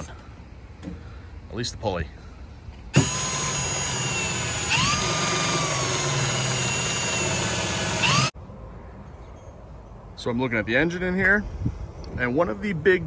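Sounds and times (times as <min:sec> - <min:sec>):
power tool motor whine: 0:03.0 - 0:08.3.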